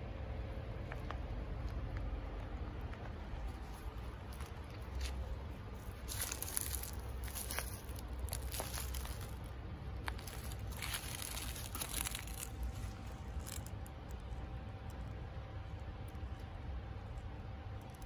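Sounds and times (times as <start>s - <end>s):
low rumble: 0.0s - 17.8s
dry leaves crunching and rustling: 3.4s - 14.0s.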